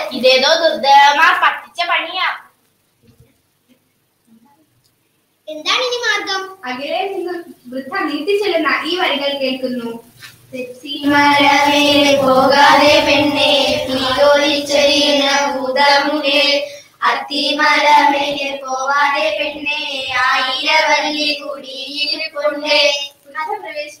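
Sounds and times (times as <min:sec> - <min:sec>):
young girls singing: 0:10.9 - 0:23.2.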